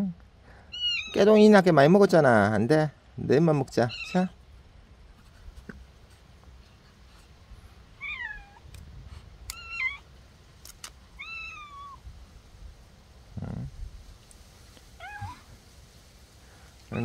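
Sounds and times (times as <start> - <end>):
cat meowing: 0.7 - 1.2, 3.9 - 4.3, 8.0 - 8.7, 9.5 - 10.0, 11.2 - 12.0, 15.0 - 15.5.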